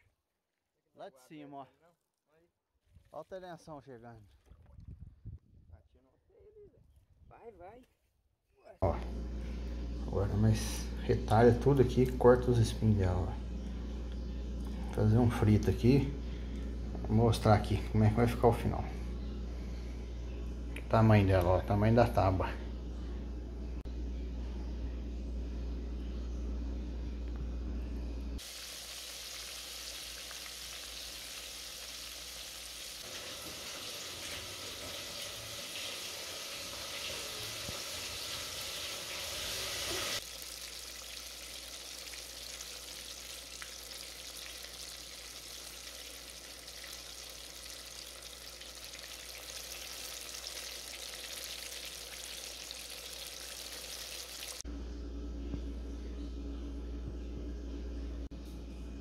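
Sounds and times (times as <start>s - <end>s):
fish deep-frying in hot oil: 28.4s - 54.6s.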